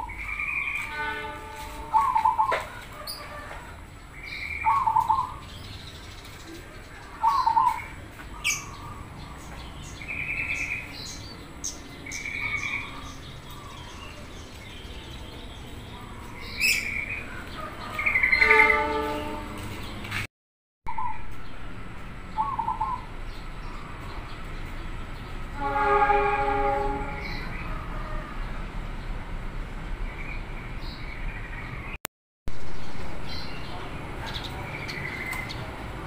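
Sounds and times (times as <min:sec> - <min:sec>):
small birds chirping: 0:04.0 - 0:18.5, 0:33.2 - 0:35.8.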